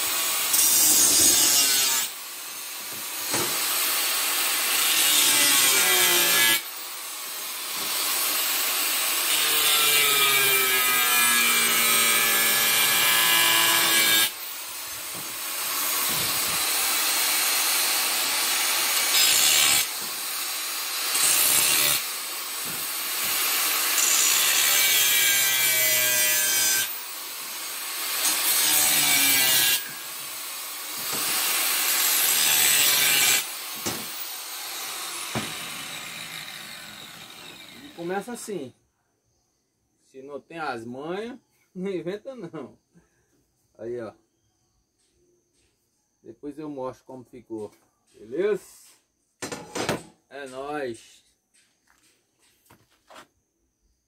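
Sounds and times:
angle grinder cutting steel: 0:00.0 - 0:38.1.

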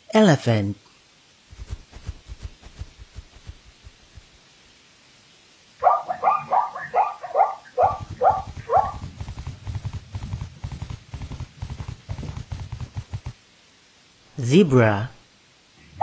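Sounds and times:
hoofbeats galloping: 0:01.5 - 0:04.4, 0:07.7 - 0:13.4
zebra barking calls: 0:05.8 - 0:09.1.

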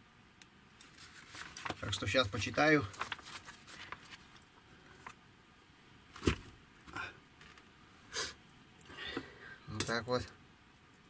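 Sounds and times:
rustling: 0:00.8 - 0:05.2.

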